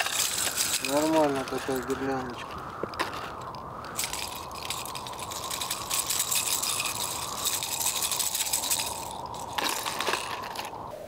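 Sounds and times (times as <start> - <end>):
plastic lures clicking and rattling: 0.0 - 10.8.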